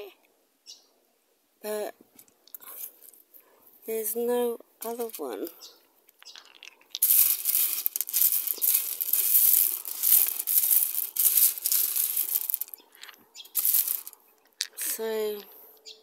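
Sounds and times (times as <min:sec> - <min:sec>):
rocks rattling in wire strainer: 0:06.3 - 0:14.2.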